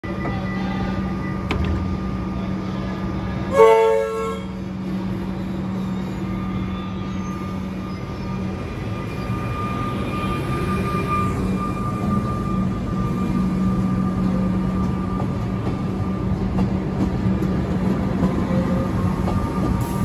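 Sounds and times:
train horn toot: 0:03.5 - 0:04.7
electric train moving off: 0:04.5 - 0:20.0.

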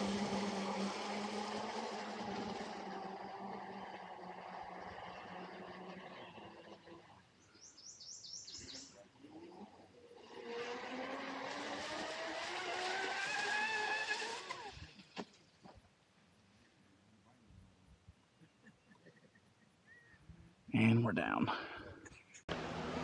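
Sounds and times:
electric motor whining: 0:00.0 - 0:07.3.

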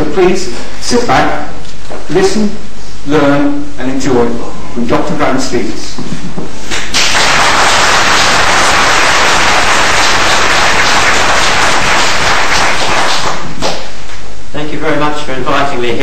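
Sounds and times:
audience applauding: 0:06.7 - 0:13.9.

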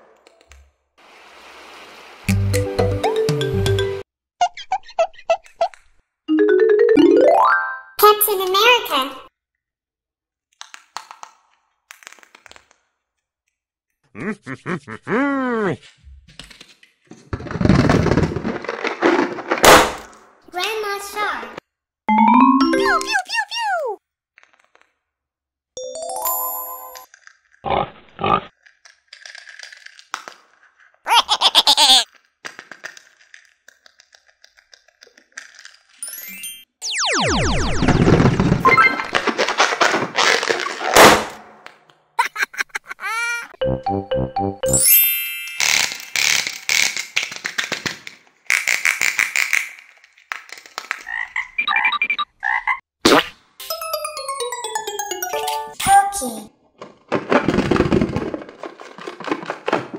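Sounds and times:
rising chime run: 0:06.3 - 0:08.0, 0:22.1 - 0:23.2, 0:25.8 - 0:27.0, 0:36.0 - 0:39.1, 0:43.6 - 0:45.7, 0:53.6 - 0:56.1
cartoon pig oinks: 0:14.1 - 0:15.8, 0:27.7 - 0:28.5
loud warbling effect: 0:22.1 - 0:23.2, 0:36.8 - 0:39.2
plastic toy figures clicking: 0:32.0 - 0:36.0.

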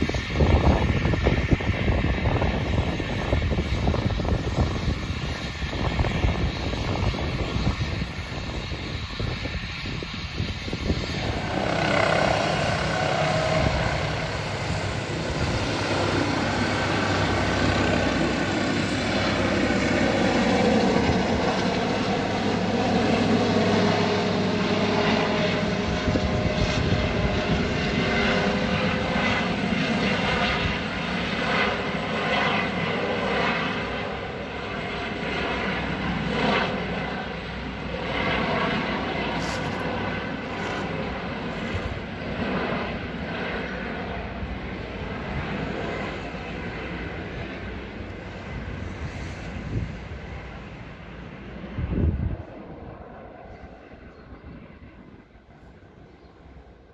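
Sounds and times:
helicopter engines and rotor: 0:00.0 - 0:56.9.

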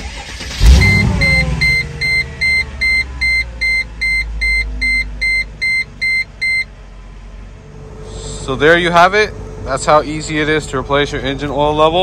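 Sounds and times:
car engine starting and idling: 0:00.0 - 0:12.0
car warning chime beeping: 0:00.1 - 0:06.8.

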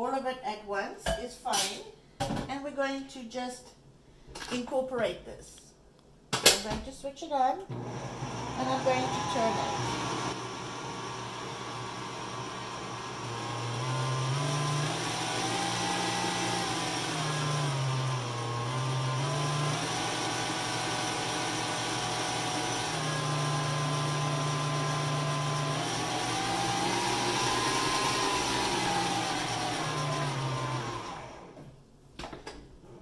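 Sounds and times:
stand mixer motor humming: 0:07.7 - 0:31.6.

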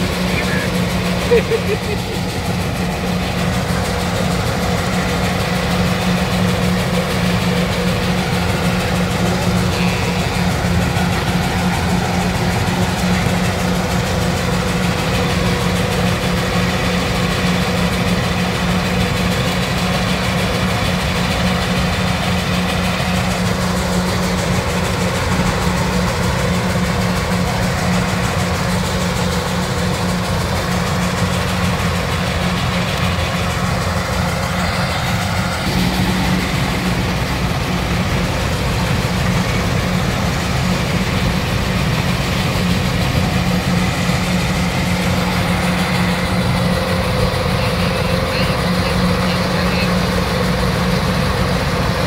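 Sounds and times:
combine harvester running: 0:00.0 - 0:52.0.

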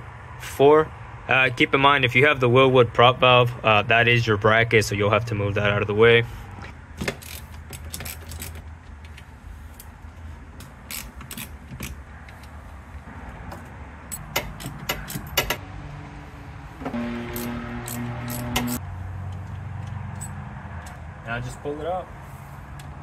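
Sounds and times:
metallic clicks of tools and nuts: 0:07.0 - 0:09.2, 0:10.6 - 0:12.5, 0:13.5 - 0:15.6, 0:17.9 - 0:21.0
steady drone: 0:15.7 - 0:18.8.

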